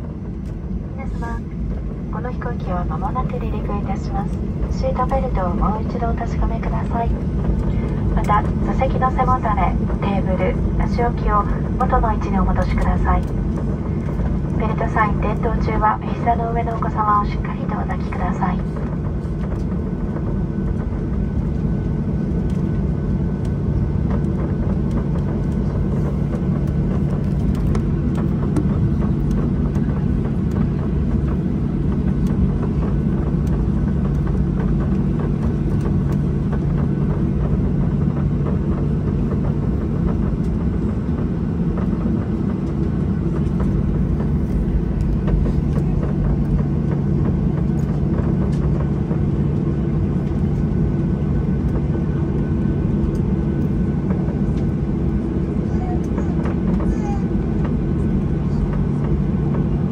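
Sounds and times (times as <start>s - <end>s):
jet engines droning in cabin: 0.0s - 59.9s.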